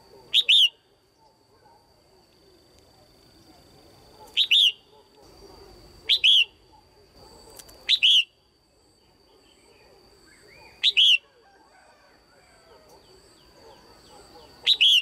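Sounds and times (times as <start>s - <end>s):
bird calling: 0.0s - 1.4s, 4.2s - 6.8s, 9.4s - 11.4s, 12.6s - 15.0s.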